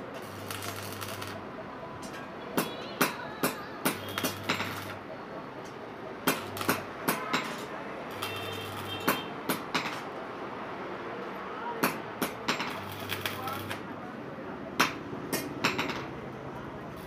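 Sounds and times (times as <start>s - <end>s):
arc welder humming: 0.0s - 1.5s, 3.8s - 5.1s, 6.3s - 9.2s, 12.6s - 13.9s.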